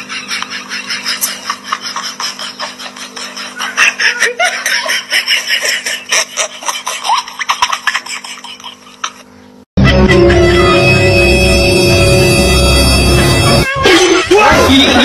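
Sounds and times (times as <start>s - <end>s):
people laughing: 0.0s - 10.6s, 13.7s - 15.0s.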